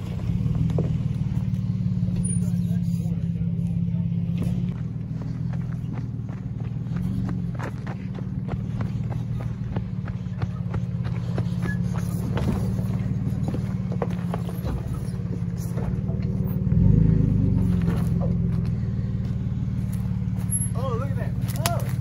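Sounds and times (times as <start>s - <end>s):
truck engine running: 0.0s - 22.0s
tyres crunching over stones: 10.6s - 22.0s.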